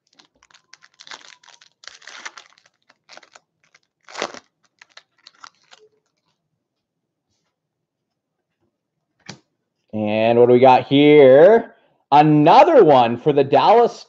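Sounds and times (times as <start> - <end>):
foil wrapper crinkling: 0.0 - 6.3.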